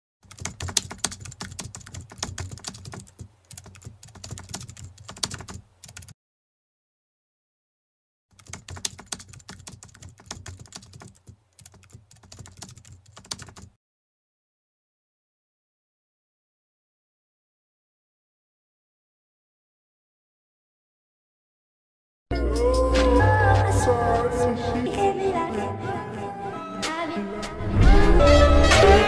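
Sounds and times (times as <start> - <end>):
computer keyboard typing: 0.2 - 6.1, 8.3 - 13.8.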